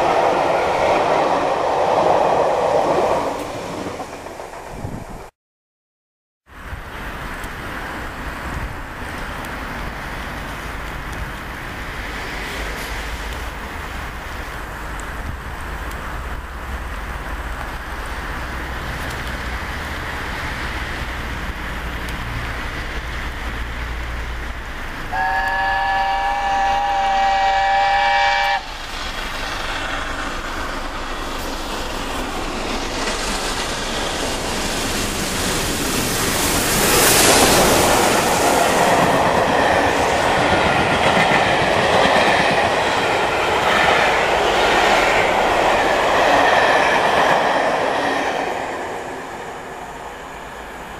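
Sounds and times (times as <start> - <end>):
steam locomotive rumble: 0.0 - 5.3, 6.5 - 50.9
steam train whistle: 25.1 - 28.8.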